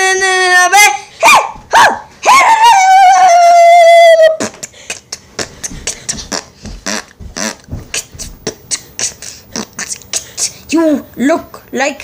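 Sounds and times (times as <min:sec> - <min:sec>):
beatboxing clicks and puffs: 0:04.4 - 0:10.8.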